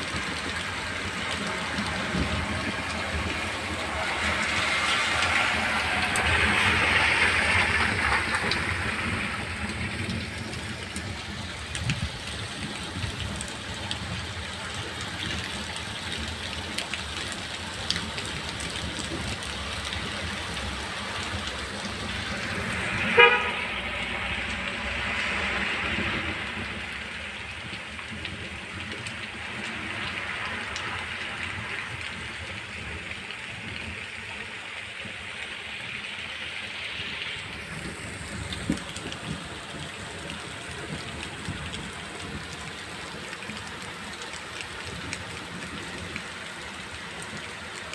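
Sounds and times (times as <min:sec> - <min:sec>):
car tyres hissing on wet road: 0:00.0 - 0:47.9
rain and running water: 0:00.0 - 0:47.9
car horn beep: 0:23.1 - 0:23.7.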